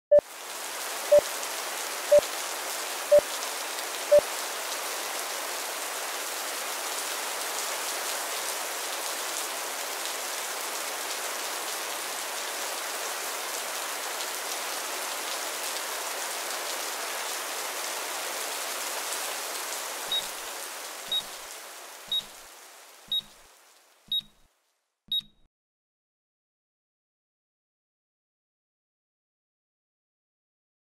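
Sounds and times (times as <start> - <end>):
rain hissing: 18.3 - 24.0
lower timer beeps: 20.1 - 20.3, 21.1 - 21.3, 22.1 - 22.3, 23.1 - 23.4, 24.1 - 24.4, 25.1 - 25.5
higher timer beeps: 21.1 - 21.3, 22.1 - 22.3, 23.1 - 23.4, 24.1 - 24.4, 25.1 - 25.5.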